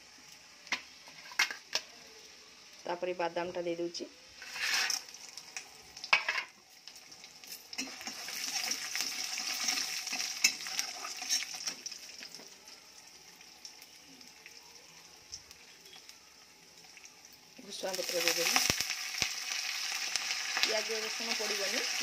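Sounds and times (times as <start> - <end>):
peanuts frying in hot oil: 0.0 - 22.0
metal spatula scraping pan: 4.4 - 5.1.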